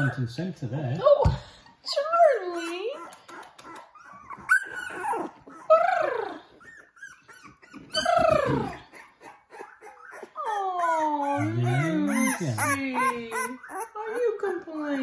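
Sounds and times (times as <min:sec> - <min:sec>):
puppies whining and crying: 0:00.0 - 0:00.3, 0:01.6 - 0:15.0.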